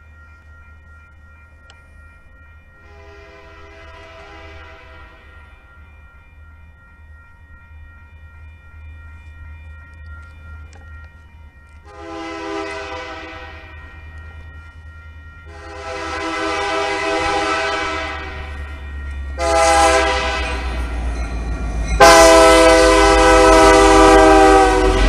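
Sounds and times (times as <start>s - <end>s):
locomotive air horn blasts: 2.8s - 5.2s, 11.8s - 13.7s, 15.5s - 18.5s, 19.4s - 20.8s, 22.0s - 25.0s
locomotive rumble: 7.3s - 25.0s.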